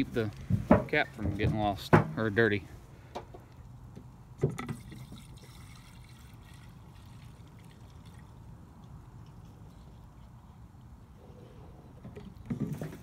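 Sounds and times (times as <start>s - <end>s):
fuel pouring into tank: 4.5s - 10.5s.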